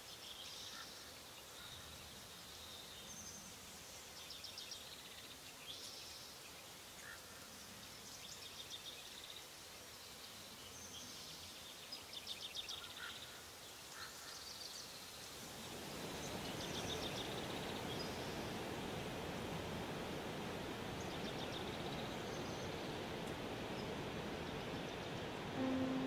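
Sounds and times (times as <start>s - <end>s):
faint background hiss: 0.0s - 26.0s
waterfall rushing: 15.6s - 26.0s.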